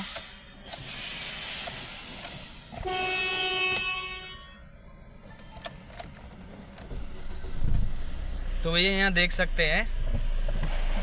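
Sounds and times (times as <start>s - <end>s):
horn steady note: 2.8s - 4.6s.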